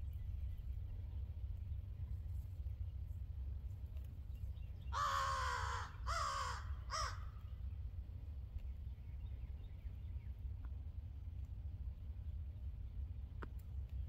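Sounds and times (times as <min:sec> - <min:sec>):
crow cawing: 0:04.9 - 0:07.4.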